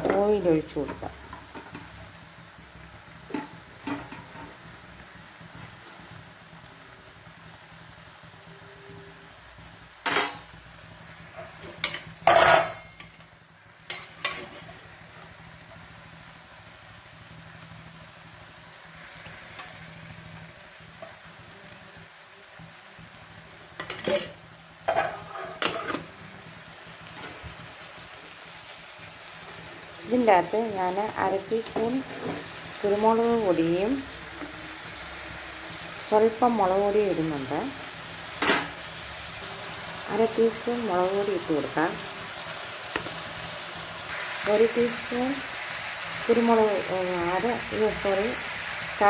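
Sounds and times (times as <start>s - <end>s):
faint frying sizzle in a pan: 0.0s - 49.0s
onions dropped into frying pan: 10.0s - 10.5s, 11.4s - 13.3s, 23.8s - 26.1s, 38.4s - 38.8s
loud bursts from frying pan: 29.4s - 49.0s.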